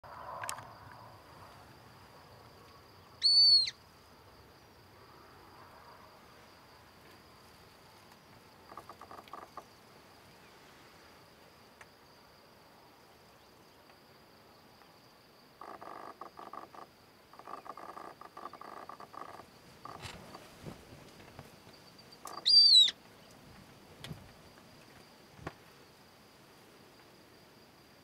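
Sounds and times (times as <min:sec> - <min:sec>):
insect trill: 0:00.0 - 0:28.0.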